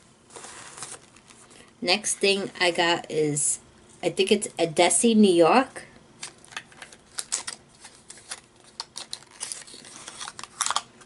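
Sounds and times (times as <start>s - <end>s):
packaging crinkling: 0.3s - 1.7s, 6.2s - 11.0s.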